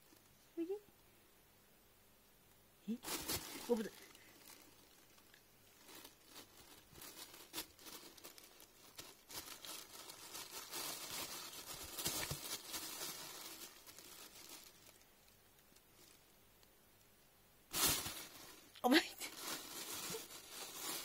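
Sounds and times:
plastic bag rustling and crinkling: 2.9 - 16.4, 17.7 - 21.0.

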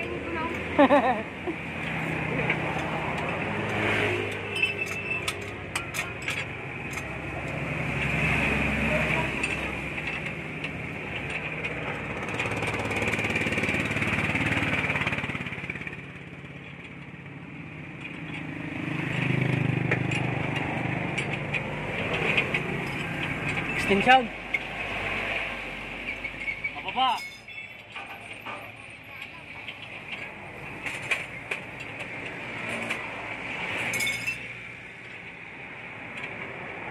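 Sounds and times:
vehicle engine noise: 0.0 - 36.9
sharp metallic clicks: 1.8 - 8.2.

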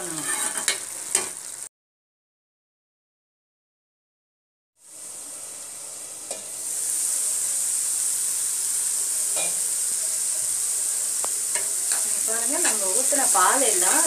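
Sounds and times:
food sizzling in a frying pan: 0.0 - 1.7, 4.8 - 14.0.

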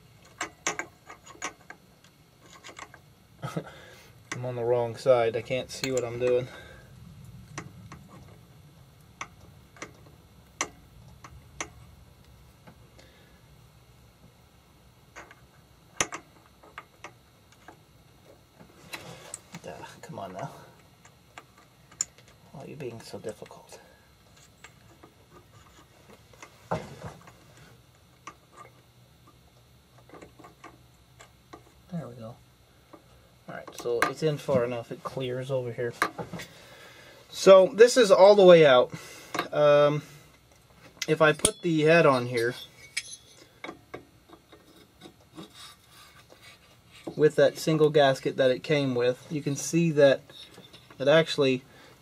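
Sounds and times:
metal-on-metal clicks: 0.2 - 1.8, 41.0 - 45.2.

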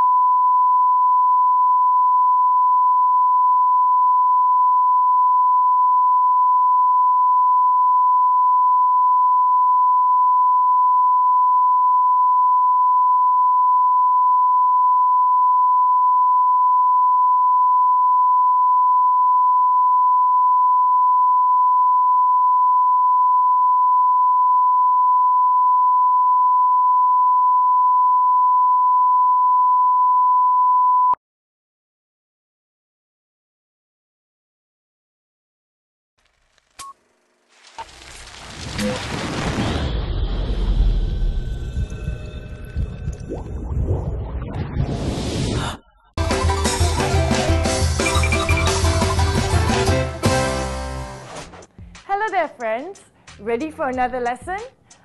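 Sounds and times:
steady sine test tone: 0.0 - 31.2.

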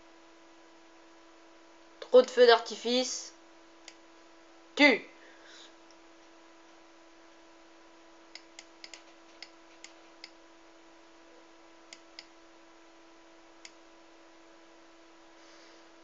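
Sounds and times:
faint electrical hum and hiss: 0.0 - 16.0
computer mouse clicks: 8.3 - 10.4.

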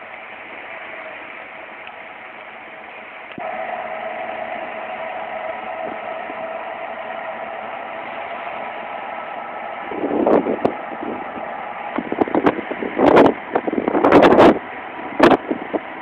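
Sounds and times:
ship engines droning: 0.0 - 16.0
wind buffeting microphone: 3.4 - 16.0.

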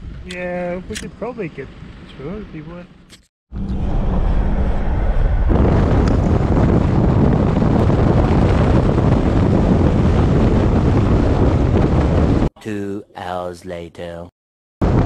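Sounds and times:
vehicle and road noise: 0.0 - 9.4
wind buffeting microphone: 3.6 - 12.5.

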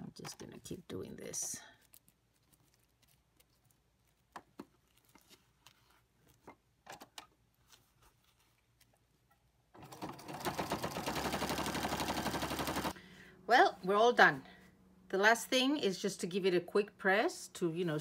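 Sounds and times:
sewing machine stitching: 9.8 - 13.0.

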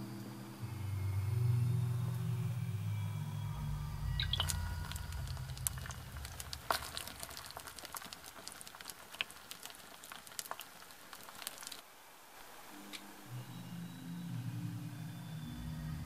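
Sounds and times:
fire crackling and popping: 3.9 - 13.0.

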